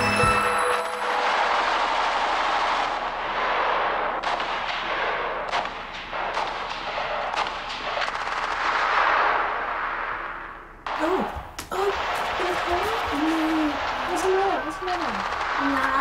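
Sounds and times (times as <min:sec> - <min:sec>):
video game gunfire: 0:01.2 - 0:10.2, 0:10.8 - 0:16.0
sharp single gunshots: 0:01.2 - 0:11.0.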